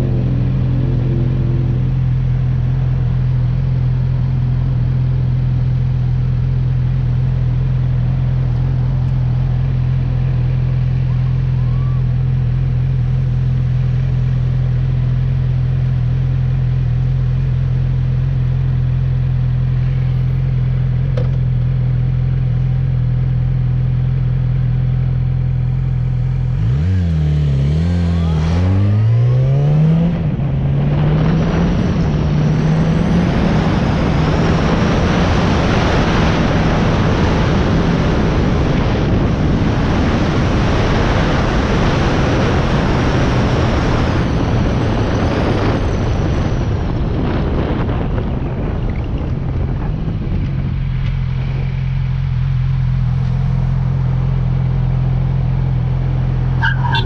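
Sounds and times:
motorcycle engine idling and revving: 0:00.0 - 0:57.0
wind on microphone: 0:30.1 - 0:52.4.

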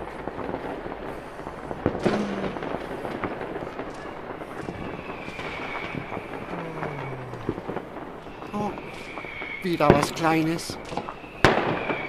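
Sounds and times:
fireworks popping and crackling: 0:00.0 - 0:12.0
sharp firework bang: 0:01.8 - 0:03.8, 0:04.4 - 0:12.0.

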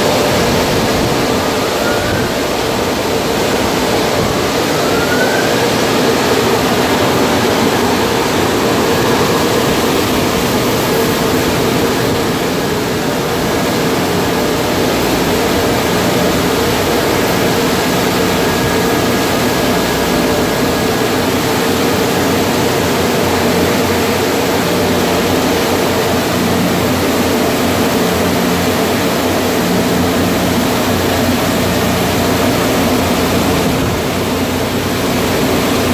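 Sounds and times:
dryer blowers rushing air: 0:00.0 - 0:35.9
faint high whistle: 0:04.7 - 0:06.1.

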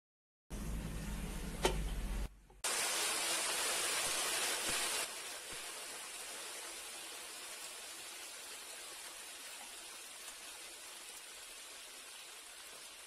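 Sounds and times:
fish deep-frying in hot oil: 0:02.6 - 0:13.0.

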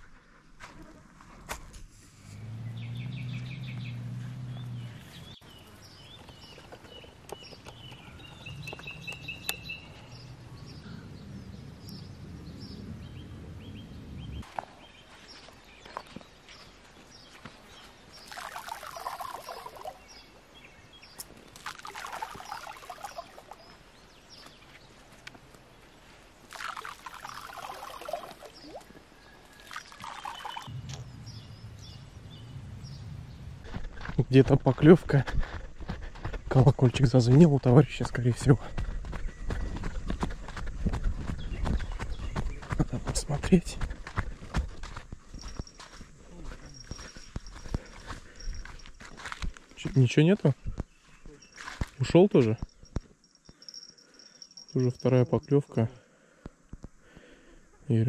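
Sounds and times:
small birds chirping: 0:02.2 - 0:58.0
rushing sloshing water: 0:21.6 - 0:23.6, 0:26.5 - 0:29.0
low hum: 0:30.7 - 0:34.6.

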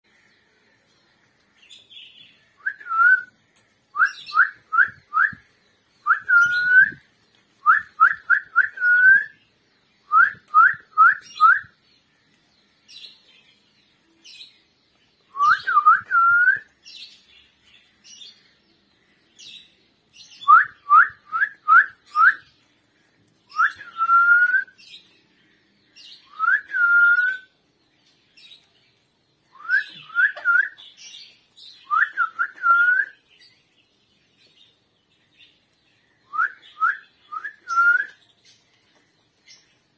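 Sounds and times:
upward-sweeping whistled notes: 0:36.3 - 0:38.2.

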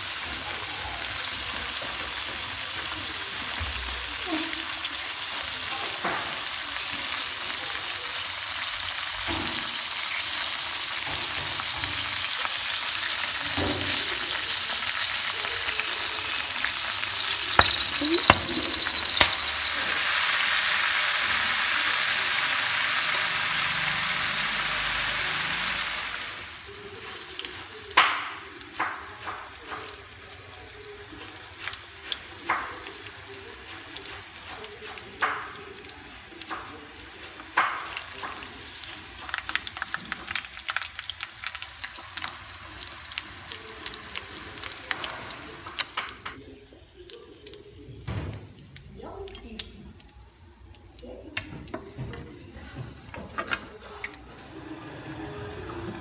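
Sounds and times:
deep-frying sizzle in oil: 0:00.0 - 0:56.0
metal tongs clicking on pan: 0:17.0 - 0:19.9.

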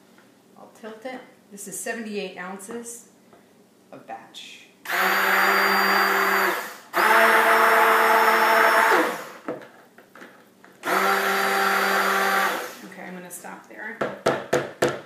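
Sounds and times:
electric stick blender running in bursts: 0:04.9 - 0:09.4, 0:10.8 - 0:12.8.

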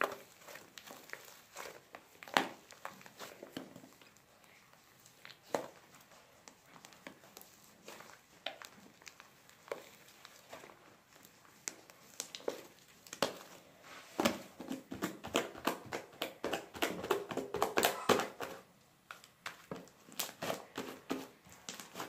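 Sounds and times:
slime popping and crackling: 0:00.0 - 0:22.0.

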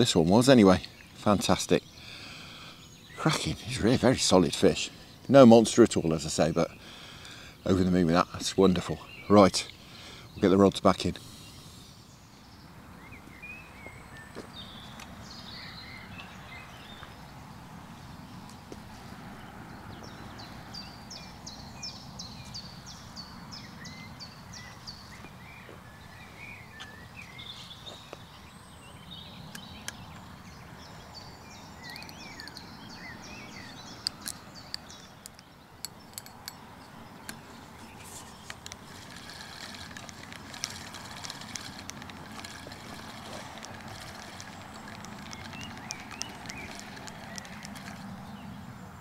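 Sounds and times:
birds singing: 0:00.0 - 0:49.0
low outdoor background: 0:00.0 - 0:49.0
sharp clicks and taps: 0:38.4 - 0:48.1.

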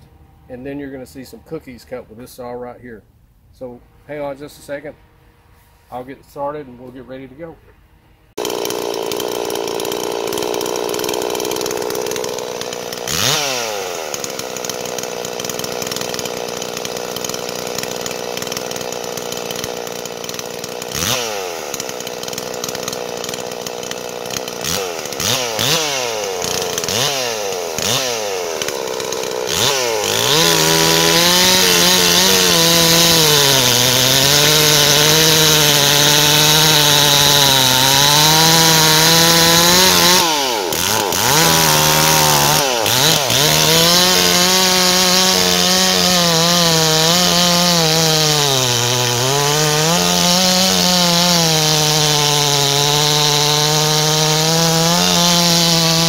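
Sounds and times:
chainsaw cutting log: 0:08.4 - 0:56.0
chainsaw idling and revving: 0:08.4 - 0:56.0.

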